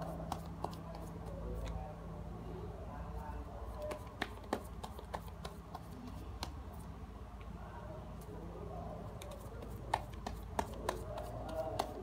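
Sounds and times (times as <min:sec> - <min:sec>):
cards clicking and tapping: 0:00.3 - 0:01.8, 0:03.8 - 0:06.6, 0:09.2 - 0:12.0.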